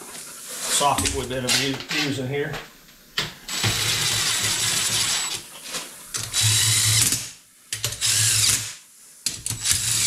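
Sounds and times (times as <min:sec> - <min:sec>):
cordless drill driving bolts: 0:03.5 - 0:05.4, 0:06.2 - 0:08.7.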